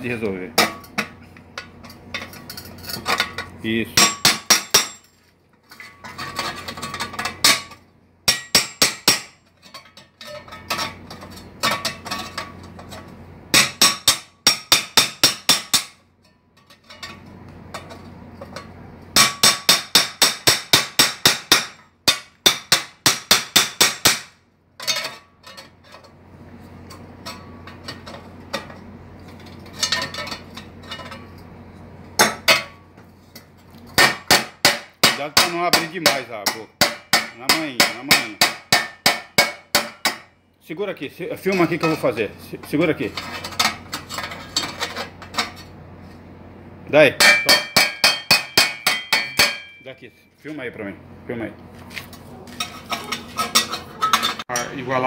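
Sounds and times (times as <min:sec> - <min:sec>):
hammer tapping metal tube: 0:34.0 - 0:40.3, 0:47.2 - 0:49.8.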